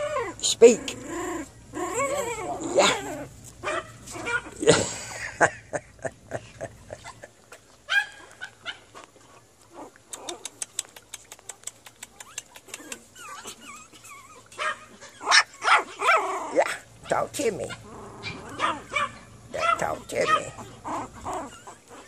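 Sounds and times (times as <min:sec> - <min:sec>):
puppies yipping and barking: 0:00.0 - 0:05.5, 0:06.6 - 0:22.0.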